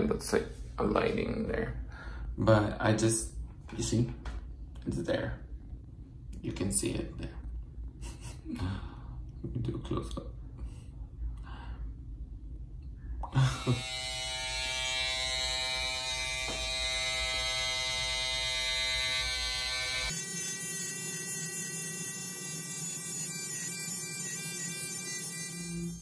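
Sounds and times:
electric trimmer buzzing: 13.4s - 26.0s.

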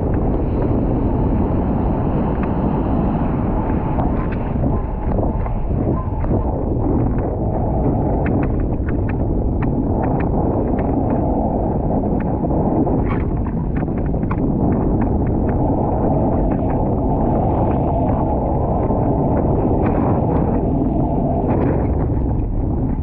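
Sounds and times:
wind on microphone: 0.0s - 23.0s.

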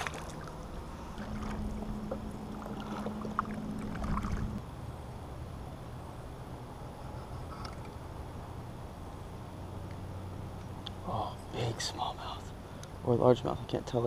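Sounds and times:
kayak paddle strokes: 0.0s - 4.6s
water along kayak hull: 0.0s - 5.4s
low steady hum: 0.0s - 14.0s.

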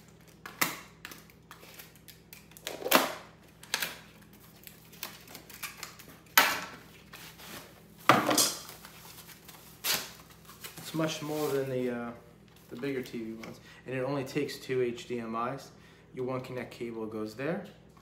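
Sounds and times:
cardboard and plastic rustling: 3.6s - 13.4s.

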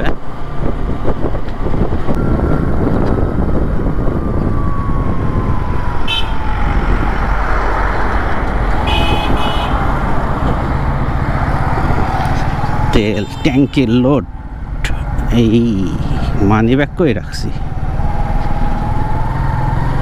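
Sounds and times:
motorcycle engine and road noise: 0.0s - 20.0s
vehicle horn toots: 6.1s - 6.4s, 8.8s - 9.8s, 13.2s - 13.8s.

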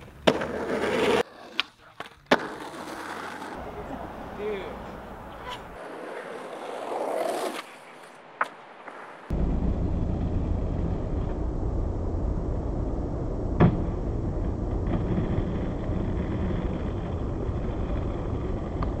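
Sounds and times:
skateboard landing clack: 0.0s - 3.5s
skateboard wheels rolling on pavement: 0.0s - 19.0s.

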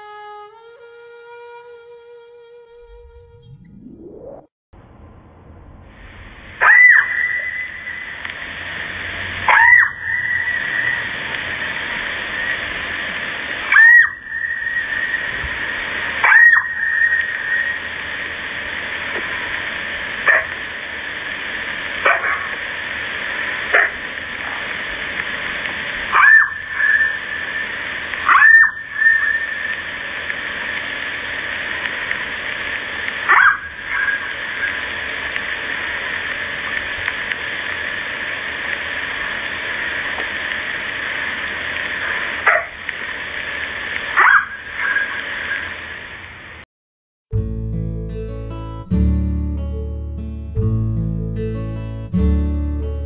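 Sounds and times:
fox barking: 6.6s - 7.7s, 9.5s - 10.7s, 13.7s - 14.2s, 16.2s - 17.3s, 22.0s - 22.5s, 23.7s - 24.0s, 26.1s - 27.1s, 28.2s - 29.4s, 33.3s - 34.2s, 44.2s - 45.0s.

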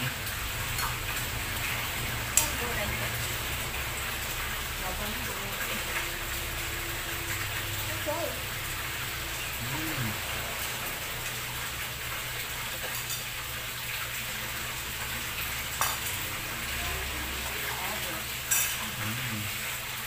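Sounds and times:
steady hiss: 8.6s - 17.4s
cutlery clinking on plates: 18.5s - 18.9s.

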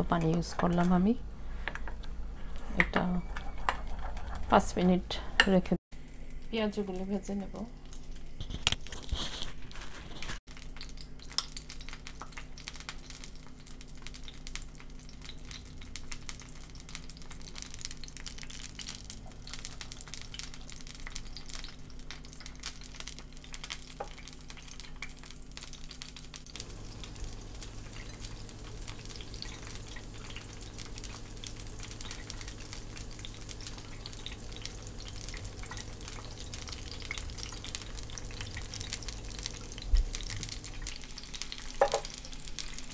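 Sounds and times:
fritters sizzling in hot oil: 6.0s - 42.9s
low hum: 26.6s - 41.4s.

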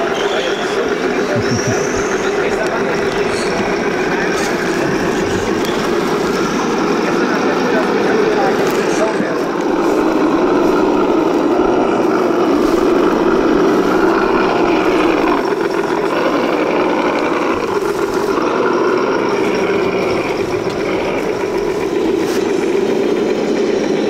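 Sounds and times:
steady hum: 0.0s - 24.0s
toy car electric motor whining: 0.0s - 24.0s.

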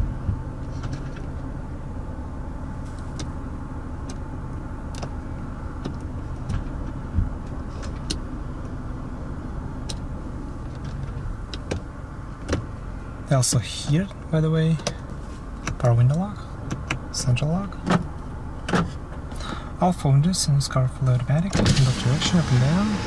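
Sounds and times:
car engine idling: 0.0s - 23.0s
side mirror motor: 21.6s - 23.0s.

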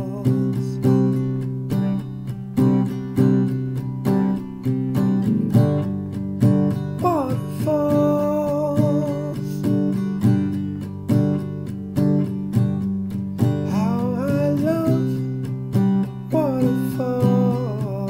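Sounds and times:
man singing: 0.0s - 1.3s, 7.0s - 10.0s, 13.5s - 18.0s
acoustic guitar strumming: 0.0s - 18.0s.

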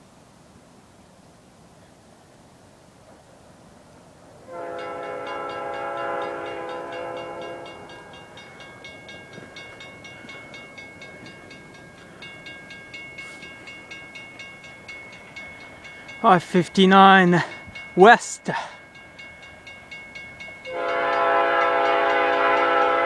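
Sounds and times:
distant locomotive horn: 4.4s - 8.6s, 20.6s - 23.0s
crossing warning bell clanging: 4.5s - 23.0s.

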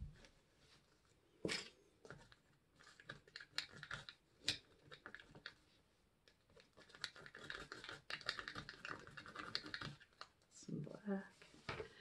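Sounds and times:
stir stick scraping cup: 2.0s - 5.7s, 6.3s - 10.4s.

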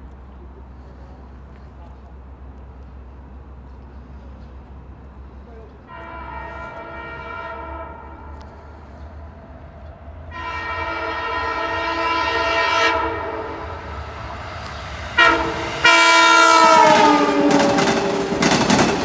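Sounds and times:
diesel train horn blasts: 5.8s - 8.8s, 10.3s - 13.9s, 15.1s - 18.4s.

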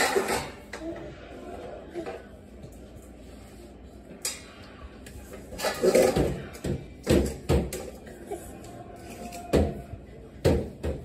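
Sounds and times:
bowls clattering on tile floor: 0.0s - 0.8s, 5.2s - 11.0s.

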